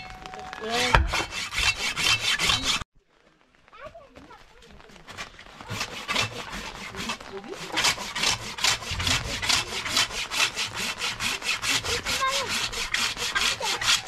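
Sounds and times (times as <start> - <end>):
fast rhythmic scraping strokes: 0.6 - 2.8, 5.1 - 14.0.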